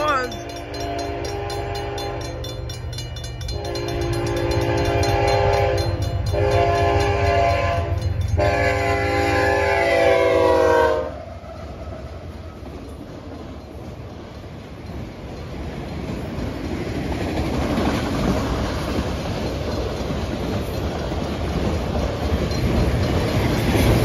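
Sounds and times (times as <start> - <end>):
crossing bell ringing: 0.0 - 9.6, 12.7 - 16.7, 19.4 - 24.0
locomotive rumble: 0.0 - 24.0
locomotive air horn blasts: 0.6 - 2.4, 3.6 - 11.2.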